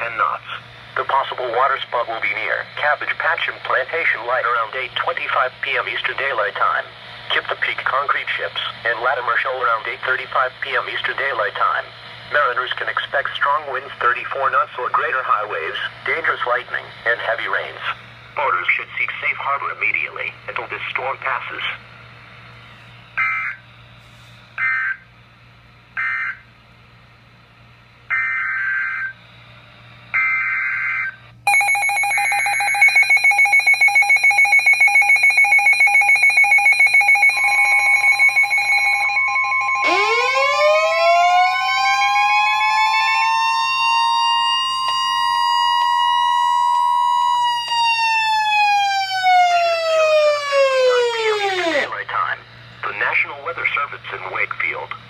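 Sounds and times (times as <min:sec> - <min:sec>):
steady alarm tone: 0:23.1 - 0:23.7, 0:24.6 - 0:25.1, 0:26.0 - 0:26.5, 0:28.1 - 0:29.2, 0:30.1 - 0:52.1
siren winding up and down: 0:23.2 - 0:23.6, 0:24.6 - 0:25.0, 0:26.0 - 0:26.4, 0:28.1 - 0:29.2, 0:30.1 - 0:52.0
data bursts: 0:31.5 - 0:40.1
rapid pulsing beep: 0:31.5 - 0:40.1.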